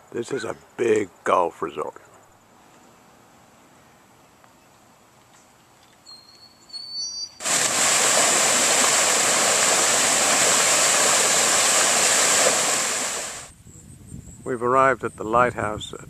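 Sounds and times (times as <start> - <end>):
water rushing over weir: 7.4 - 13.5.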